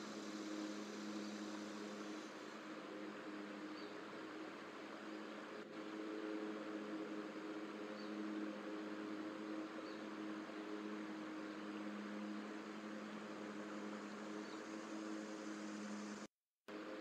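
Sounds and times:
even hiss: 0.0 - 5.0
steady background hum: 0.0 - 17.0.

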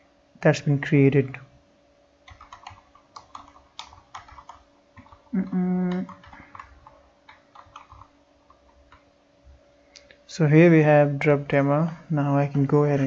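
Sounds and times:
computer keyboard typing: 2.2 - 9.0
person humming: 5.3 - 6.1.

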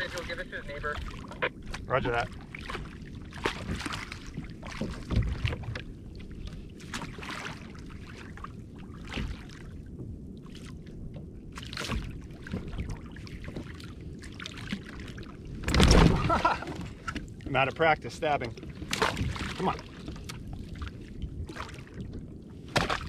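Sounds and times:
water splashing and sloshing: 0.0 - 23.0.

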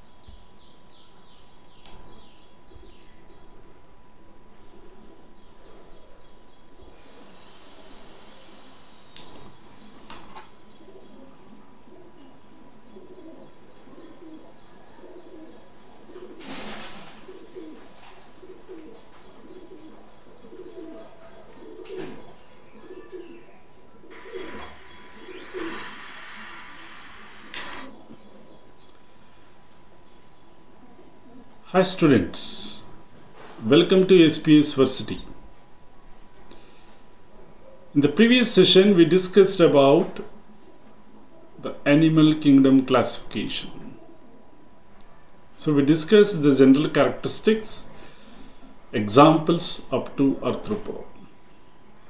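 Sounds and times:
faint steady high whine: 0.0 - 52.0
dove cooing: 2.6 - 29.5, 30.6 - 31.6, 36.6 - 38.0, 43.6 - 45.2
small bird chirping: 18.8 - 29.2.

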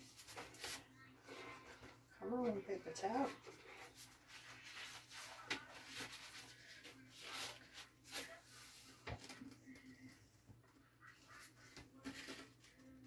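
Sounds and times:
paper towel rustling: 0.0 - 10.1.

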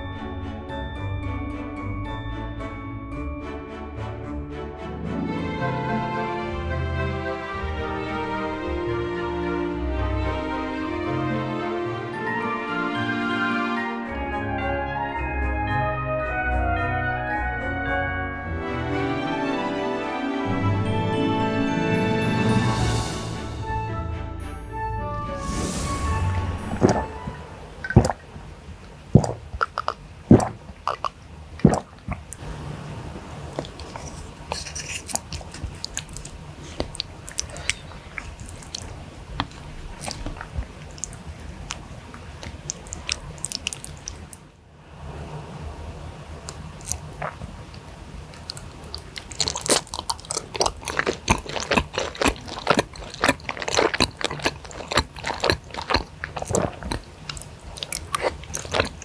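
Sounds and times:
sipping and gulping from a glass: 26.3 - 32.4, 33.5 - 44.4, 46.5 - 59.0
wet chewing and smacking: 26.4 - 32.5, 33.5 - 44.5, 46.4 - 59.0.

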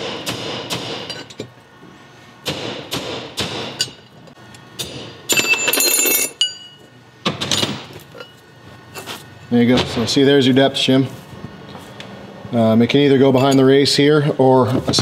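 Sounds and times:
hammer striking steel punch: 0.0 - 1.2, 2.4 - 4.0.

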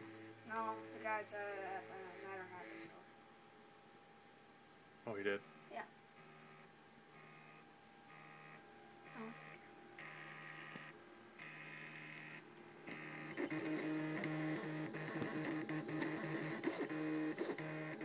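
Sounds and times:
printer stepper motors whining: 5.5 - 18.0.

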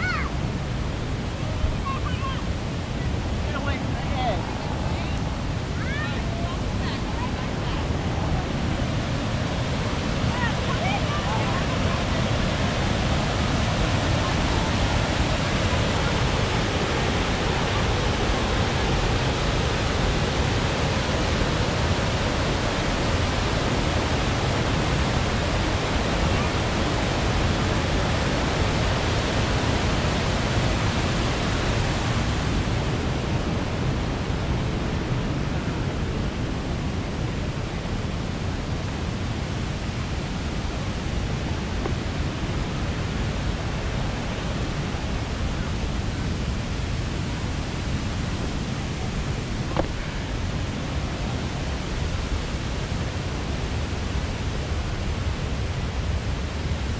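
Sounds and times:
water rushing: 0.0 - 56.9.

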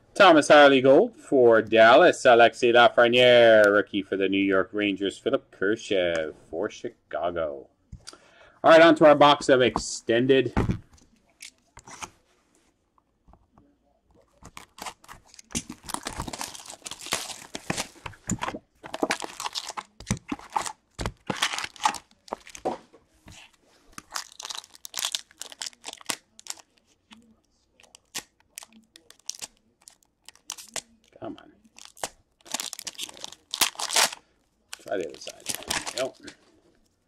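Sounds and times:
packaging tearing and crinkling: 14.4 - 18.0, 18.8 - 22.6, 24.0 - 26.8, 27.8 - 31.0, 31.7 - 36.4.

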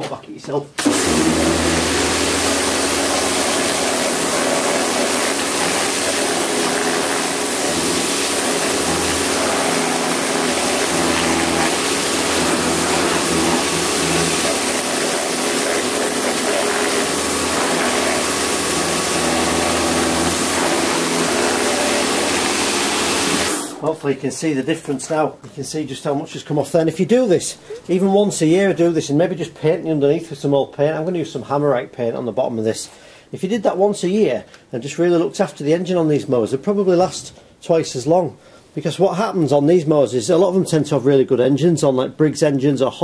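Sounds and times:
pressure washer pump humming: 0.8 - 23.9
water jet hissing on metal: 0.8 - 23.9.

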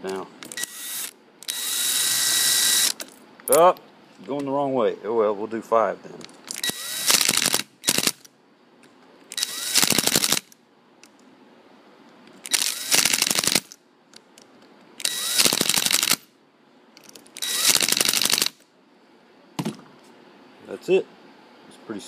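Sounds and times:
impact driver driving screws: 6.6 - 8.2, 9.3 - 10.4, 15.0 - 16.2, 17.4 - 18.5.

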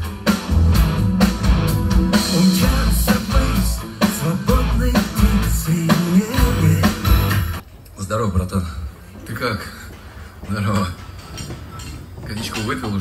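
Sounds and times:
live rock band playing: 0.0 - 7.6.

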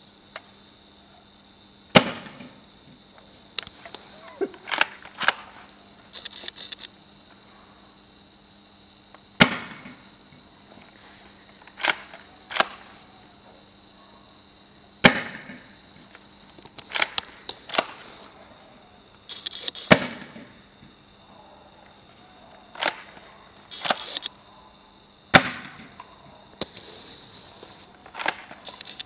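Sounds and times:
airsoft shotgun shots: 1.9 - 2.6, 9.4 - 10.0, 15.0 - 15.6, 19.8 - 20.5, 25.3 - 26.0
shotgun pump clacks: 16.8 - 18.0, 22.8 - 24.3.

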